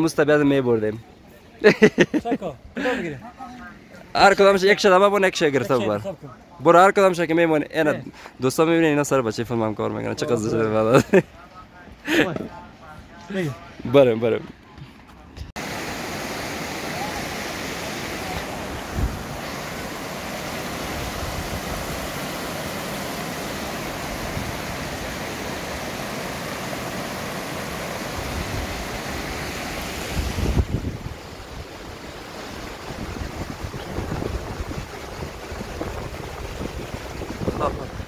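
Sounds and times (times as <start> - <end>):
water rushing: 2.8 - 13.8, 15.6 - 38.0
wind buffeting microphone: 18.4 - 19.7, 30.0 - 38.0.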